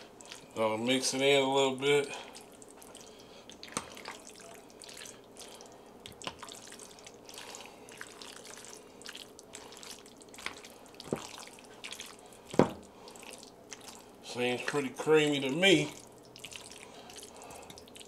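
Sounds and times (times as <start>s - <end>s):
wet stirring of pasta: 0.0s - 18.0s.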